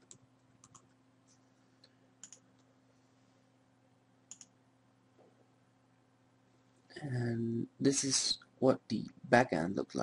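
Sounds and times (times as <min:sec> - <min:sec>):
keyboard and mouse clicks: 0:00.0 - 0:00.9, 0:02.2 - 0:02.7, 0:04.3 - 0:04.6
faint low hum: 0:00.0 - 0:10.0.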